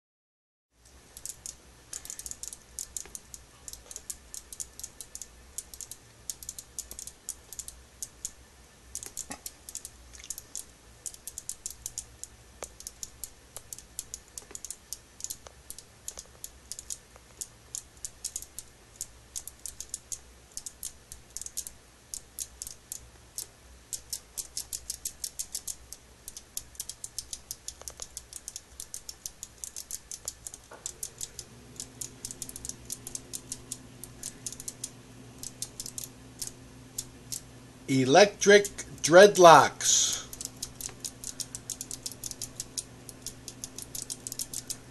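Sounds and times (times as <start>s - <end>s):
rapid light clicking: 0.8s - 37.8s, 40.2s - 44.9s
low steady hum: 0.8s - 44.9s.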